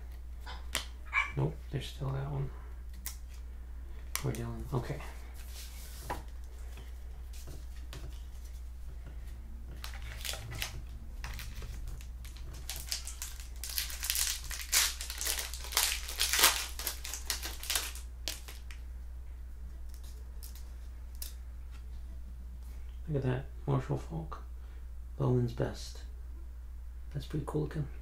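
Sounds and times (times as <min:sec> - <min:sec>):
foil wrapper crinkling and tearing: 0:09.8 - 0:18.8.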